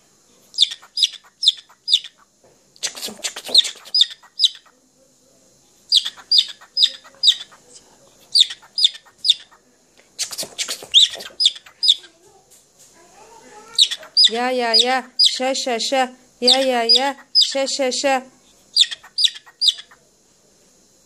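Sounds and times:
cockatiel chirping: 0.5 - 4.7, 5.9 - 7.6, 8.3 - 9.6, 10.2 - 12.1, 13.7 - 15.4, 16.4 - 17.6, 18.7 - 20.0.

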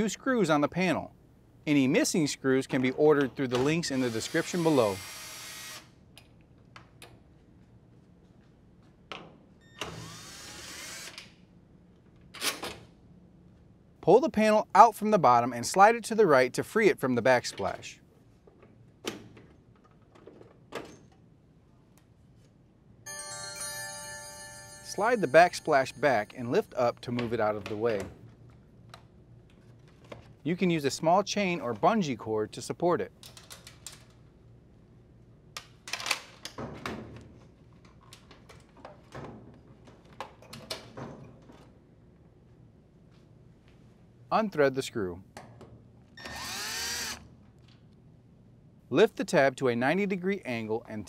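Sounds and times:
sustained bright chime: 23.1 - 26.8.

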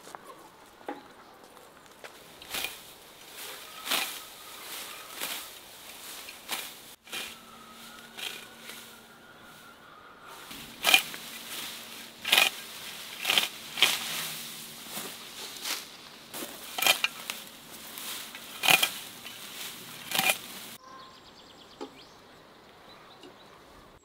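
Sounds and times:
hand shears snipping grass: 2.3 - 9.0, 10.4 - 20.8.

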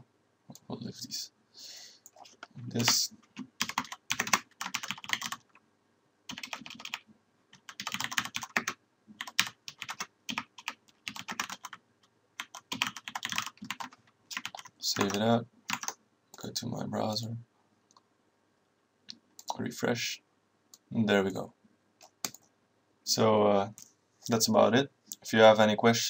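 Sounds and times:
typing on computer keyboard: 2.1 - 5.6, 6.3 - 11.8, 12.4 - 16.0.

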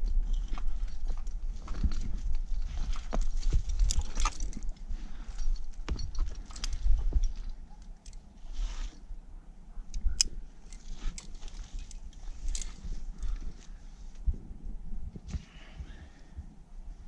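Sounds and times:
metallic clicks of climbing gear: 0.0 - 9.0, 9.8 - 14.3
steady low rumble: 0.0 - 17.0.

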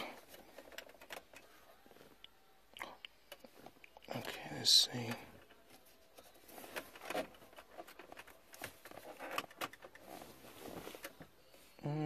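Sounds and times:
clicks and rustles of plastic trim: 0.2 - 1.5, 6.7 - 10.2.

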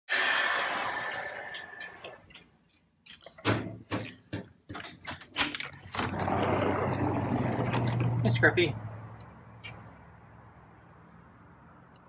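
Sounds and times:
door sliding open on track: 6.0 - 8.2.

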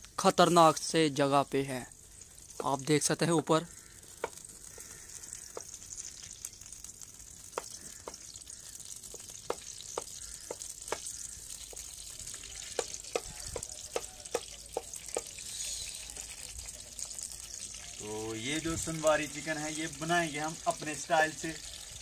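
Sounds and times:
ghee sizzling in a pan: 0.0 - 22.0
wooden spoon knocking a pan: 2.6 - 2.8, 4.1 - 4.9, 5.5 - 5.8, 7.5 - 8.3, 9.0 - 12.0, 12.6 - 15.4.

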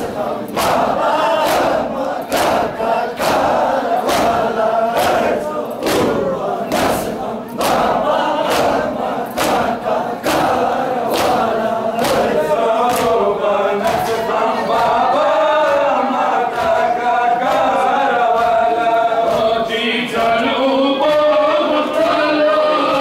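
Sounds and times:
hands slapping chests: 0.0 - 15.9
men chanting in unison: 0.0 - 23.0.

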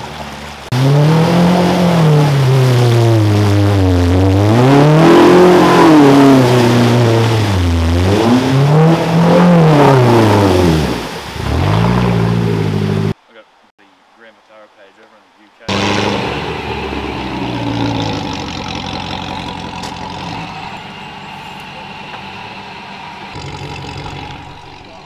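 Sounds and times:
rushing water and spray: 0.0 - 13.2
engine revving hard: 0.7 - 13.2, 15.7 - 25.0.

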